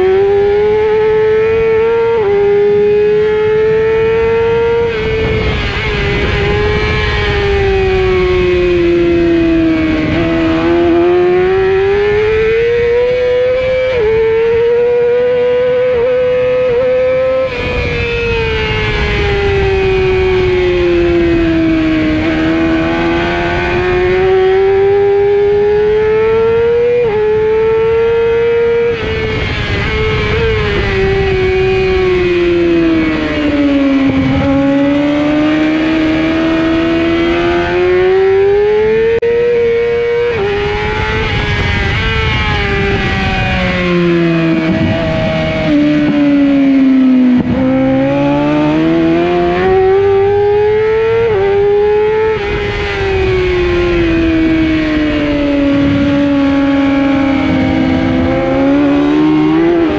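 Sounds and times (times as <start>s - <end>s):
motorcycle engine revving: 0.0s - 59.9s
wind rushing: 28.6s - 59.9s.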